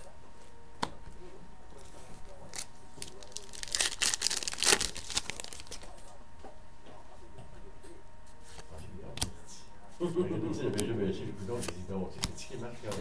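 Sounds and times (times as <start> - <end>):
wrapper tearing and crinkling: 2.5 - 5.9.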